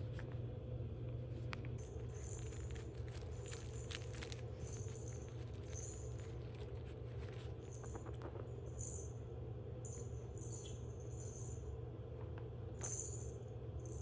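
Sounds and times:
steady low hum: 0.0s - 14.0s
foil crinkling and rustling: 1.8s - 7.6s.

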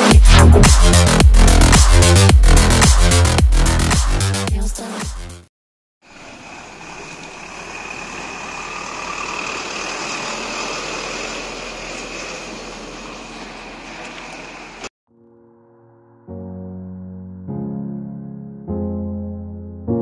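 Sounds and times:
diesel engine idling: 6.1s - 14.9s.

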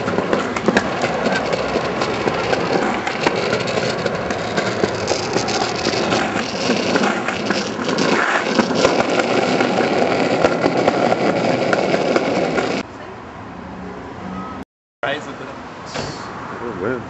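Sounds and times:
car engines running: 0.0s - 12.8s
vehicles passing: 0.0s - 17.0s.

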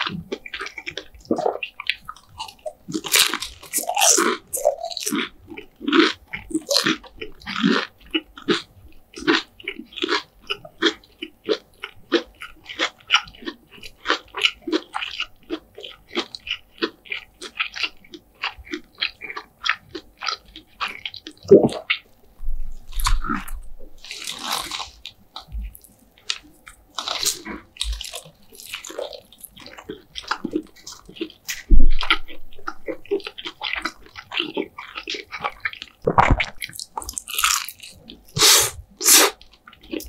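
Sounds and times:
chewing crackles: 0.0s - 40.0s
crunching fried chicken: 0.0s - 40.0s.

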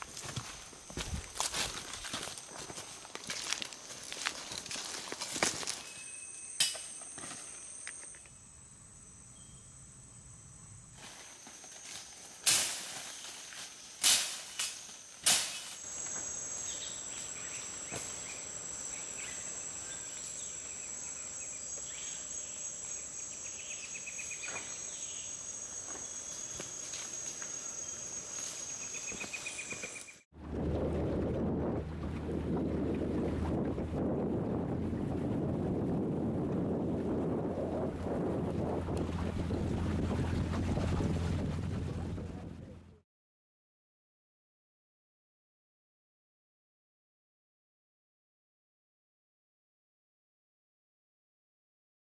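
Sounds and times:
insects droning: 0.0s - 30.3s.

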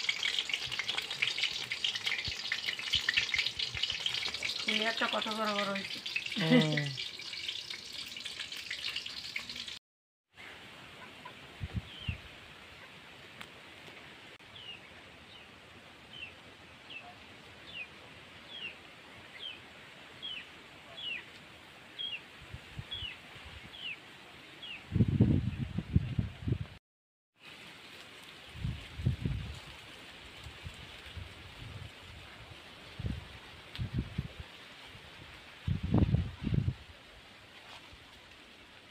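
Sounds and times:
hot oil sizzling: 0.0s - 9.8s.

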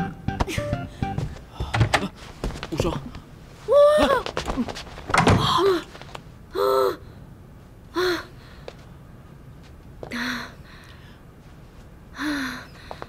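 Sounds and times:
person gasping: 0.5s - 2.2s.

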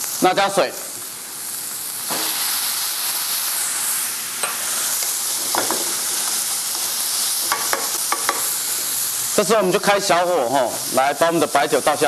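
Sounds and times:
seafood sizzling in oil: 0.0s - 12.0s
spatula clicking on pan: 7.5s - 8.5s.

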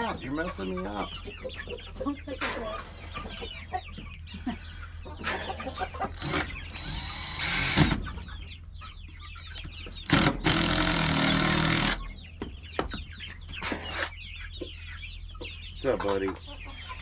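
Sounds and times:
hens clucking: 0.0s - 17.0s
cordless drill driving screws: 6.2s - 7.9s.

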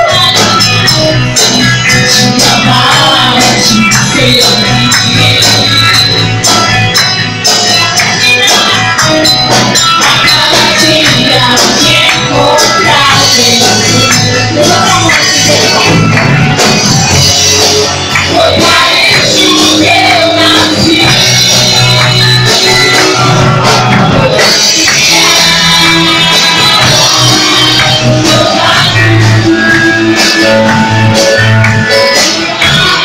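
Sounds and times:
worship band playing: 0.0s - 33.0s
women singing praise song: 18.2s - 23.0s, 24.5s - 29.8s.

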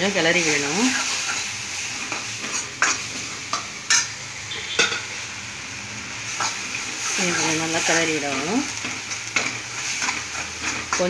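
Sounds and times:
tomatoes sizzling in a pan: 0.0s - 11.0s.

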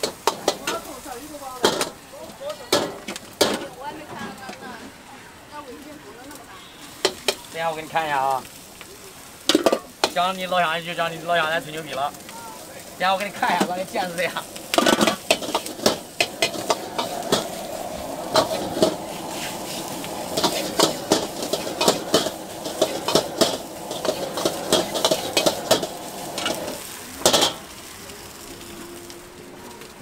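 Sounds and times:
fried rice sizzling in a wok: 0.0s - 30.0s
metal ladle scraping wok: 13.4s - 27.7s.

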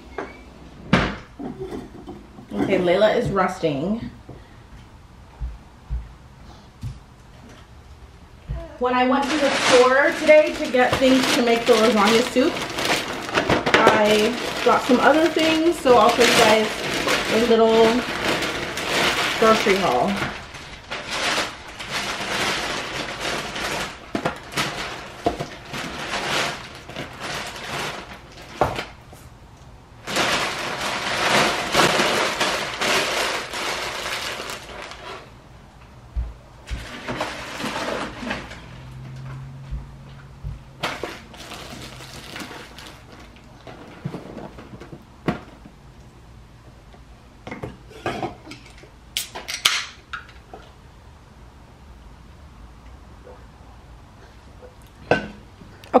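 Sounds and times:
plastic bags rustling: 8.6s - 35.5s, 36.6s - 45.8s.

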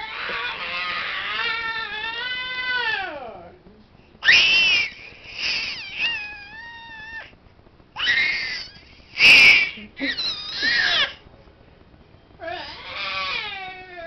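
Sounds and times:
infant squealing and shrieking: 0.0s - 3.2s, 4.2s - 7.3s, 8.0s - 11.2s, 12.4s - 14.0s.

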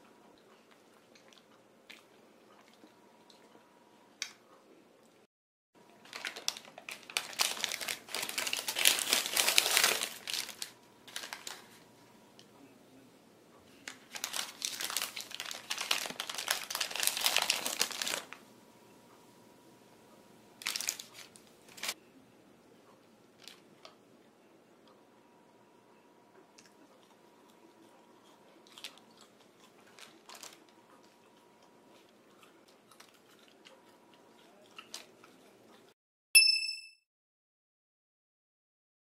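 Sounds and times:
paper bags crinkling: 6.0s - 11.8s, 13.8s - 18.4s, 20.6s - 22.0s, 29.9s - 30.7s.

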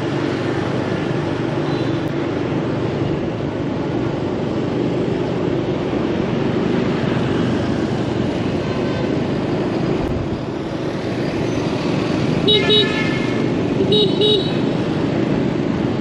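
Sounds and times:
vehicle engine and road hum: 0.0s - 16.0s.

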